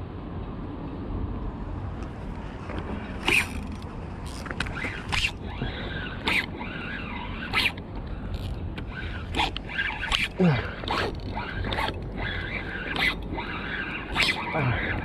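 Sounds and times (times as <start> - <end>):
spinning reel ratcheting: 3.2 - 15.0.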